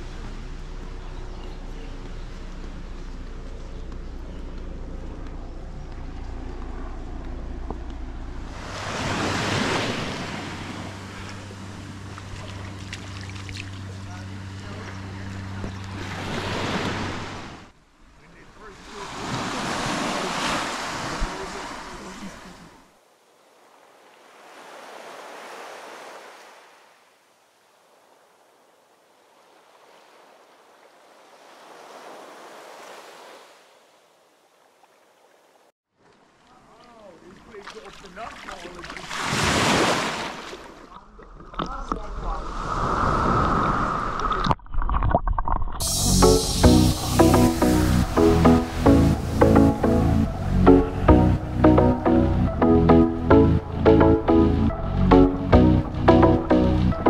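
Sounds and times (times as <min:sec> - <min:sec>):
wave washing onto beach: 0:08.5 - 0:13.7, 0:18.4 - 0:22.9, 0:23.6 - 0:27.0, 0:36.6 - 0:40.8, 0:41.7 - 0:44.5.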